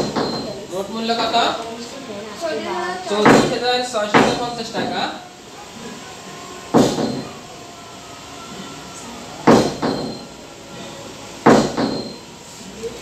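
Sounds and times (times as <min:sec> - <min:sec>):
loud sharp knocks: 0:00.0 - 0:00.5, 0:03.2 - 0:04.9, 0:06.7 - 0:07.3, 0:09.5 - 0:10.3, 0:11.4 - 0:12.2
steady low background noise: 0:00.0 - 0:13.0.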